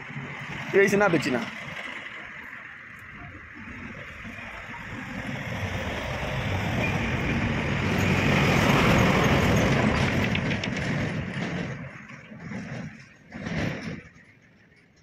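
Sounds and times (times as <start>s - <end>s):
vehicle passing on road: 0.0s - 14.8s.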